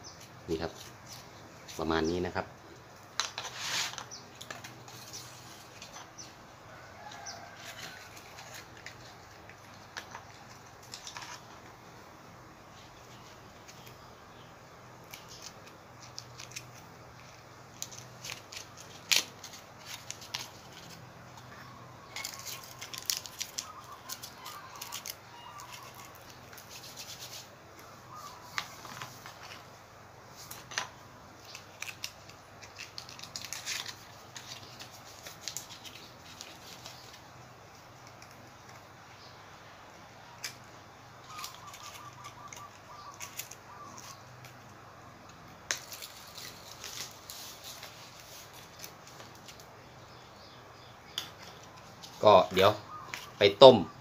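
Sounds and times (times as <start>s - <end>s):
paper liners crinkling: 15.0s - 38.9s, 41.2s - 44.7s, 45.7s - 49.7s.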